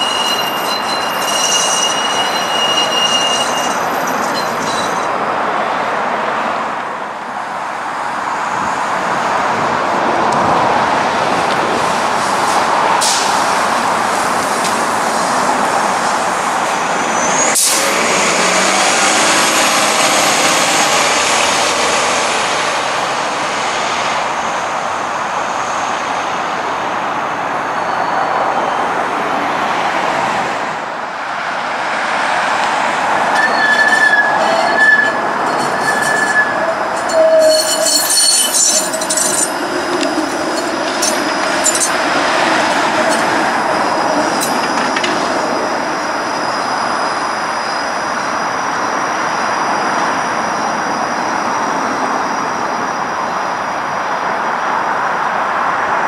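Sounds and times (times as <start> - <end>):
road traffic: 0.0 - 56.0
bus pulling away: 11.0 - 24.7.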